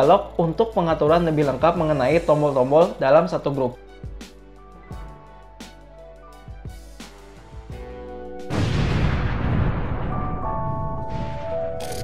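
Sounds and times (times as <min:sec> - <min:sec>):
background music: 0:00.0 - 0:12.0
explosion with deep rumble: 0:08.5 - 0:11.7.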